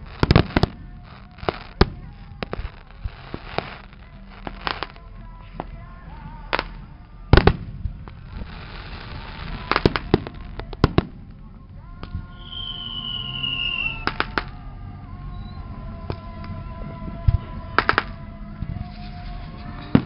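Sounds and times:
firework shells bursting: 0.0s - 5.8s, 6.5s - 11.4s, 12.0s - 14.6s, 17.8s - 18.2s.

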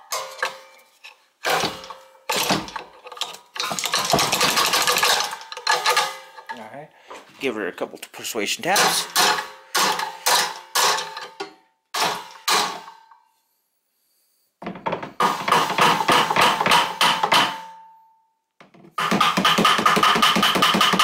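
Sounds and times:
hammer striking screwdriver: 19.0s - 21.0s.

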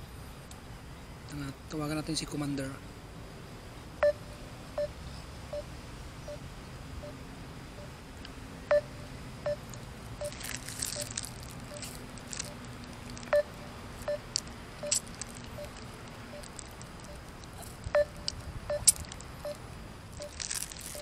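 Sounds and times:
phone call tone beeps: 4.0s - 5.7s, 8.7s - 9.6s, 13.3s - 17.2s, 17.9s - 19.6s
sharp clicks: 9.5s - 19.6s.

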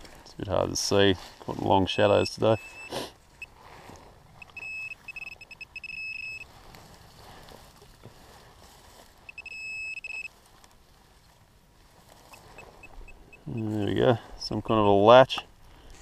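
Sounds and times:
metal detector probe beeping: 1.9s - 3.6s, 4.4s - 6.5s, 9.2s - 10.4s, 12.3s - 14.0s, 14.6s - 15.3s.

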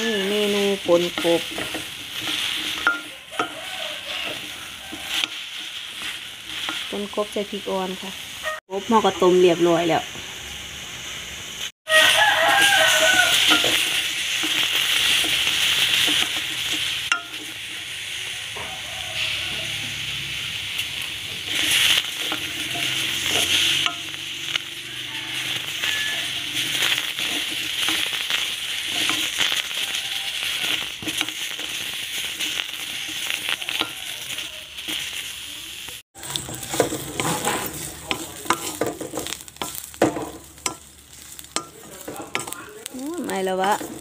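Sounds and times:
wooden spatula scraping a pan: 0.0s - 8.6s, 20.8s - 24.1s, 24.9s - 35.3s, 36.2s - 44.0s
vegetables sizzling in a wok: 0.0s - 44.0s.

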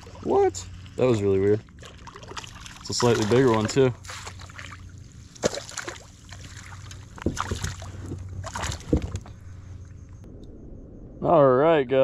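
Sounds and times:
water splashing and sloshing: 0.0s - 9.9s
knocks against a kayak: 7.2s - 9.3s.

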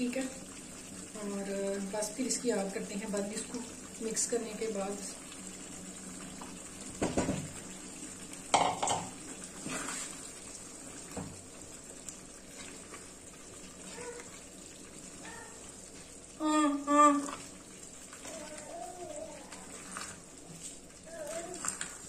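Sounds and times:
spatula knocking and scraping pan: 8.5s - 9.8s
stirring: 17.1s - 22.0s.

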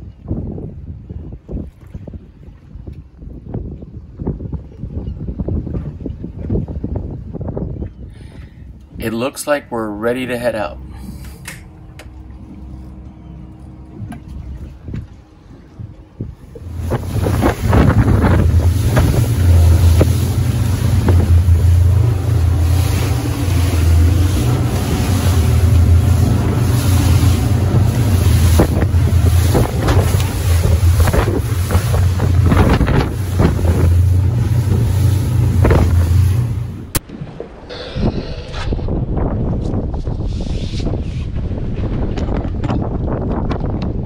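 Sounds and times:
wind buffeting microphone: 0.0s - 9.6s, 10.4s - 44.0s
water rushing along hull: 0.0s - 39.2s
motorboat engine drone: 7.9s - 39.4s.

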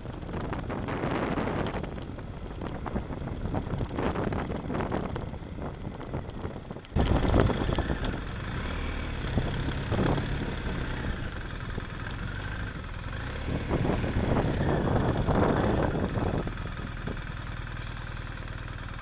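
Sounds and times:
tyres on gravel: 0.0s - 13.3s
motorcycle engine running: 0.0s - 19.0s.

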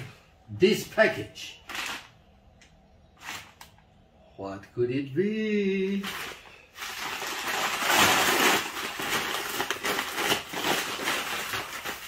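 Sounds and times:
paper mailer tearing: 1.6s - 2.1s, 7.0s - 12.0s
paper and plastic rustling: 1.6s - 2.2s, 3.2s - 3.7s, 5.9s - 12.0s.

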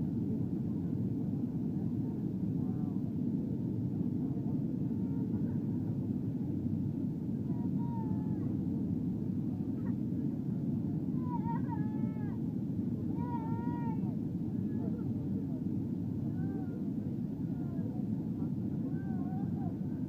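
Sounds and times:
jet cabin engine and airflow rush: 0.0s - 20.0s
faint high-pitched voice: 1.7s - 3.1s, 4.2s - 6.7s, 7.3s - 8.8s, 9.5s - 12.5s, 13.1s - 20.0s.

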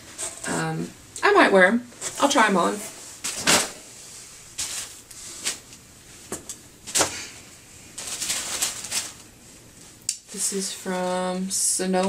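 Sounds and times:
tissue paper and plastic rustling: 2.0s - 5.7s, 6.9s - 11.4s.

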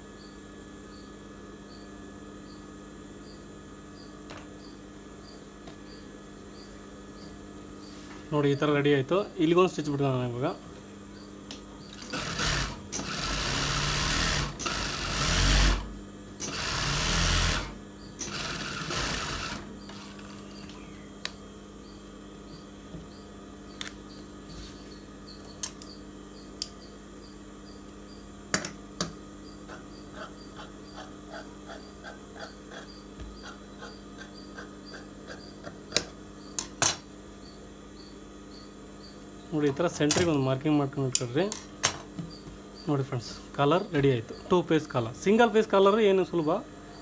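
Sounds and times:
steady low hum: 0.0s - 47.0s
sewing machine stitching: 11.9s - 20.4s.

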